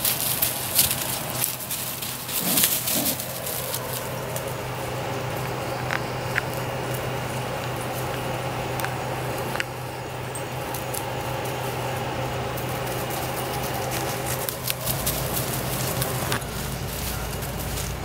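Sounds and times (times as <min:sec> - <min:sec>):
puppy paws on wood-chip mulch: 0:00.0 - 0:18.0
steady mechanical hum: 0:00.0 - 0:18.0.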